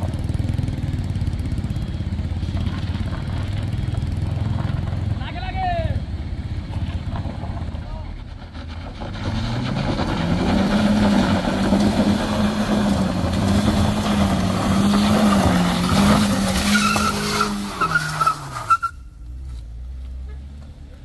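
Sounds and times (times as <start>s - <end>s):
tyres spinning on gravel: 2.2s - 5.5s, 6.8s - 19.0s
tyre squeals: 9.1s - 19.2s
car engine revving hard: 9.2s - 18.7s.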